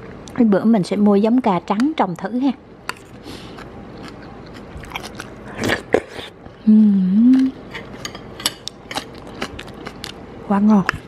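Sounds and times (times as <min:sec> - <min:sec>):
person chewing crunchy food: 0:02.9 - 0:06.5, 0:07.3 - 0:10.2
person humming: 0:06.6 - 0:07.6.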